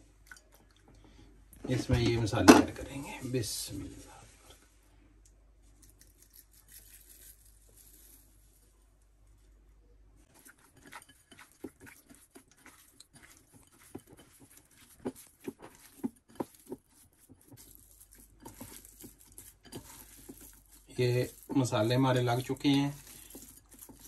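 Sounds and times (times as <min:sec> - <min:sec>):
hand squelching raw chicken: 0:10.3 - 0:24.0.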